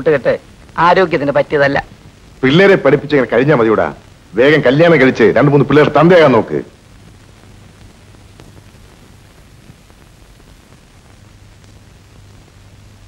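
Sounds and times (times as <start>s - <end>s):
film soundtrack hiss and hum: 0.0s - 13.0s.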